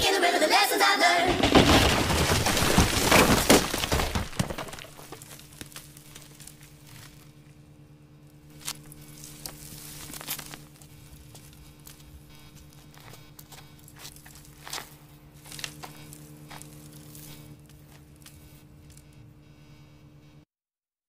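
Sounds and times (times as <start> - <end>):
sped-up pop song: 0.0 - 1.3
faint low hum: 0.0 - 20.5.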